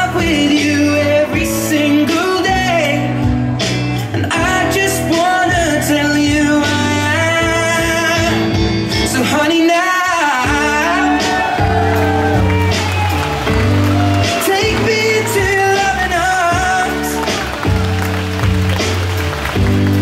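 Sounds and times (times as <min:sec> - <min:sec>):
person singing: 0:00.0 - 0:13.2, 0:13.8 - 0:17.9
instrumental accompaniment: 0:10.4 - 0:20.0
sustained bass notes: 0:10.4 - 0:20.0.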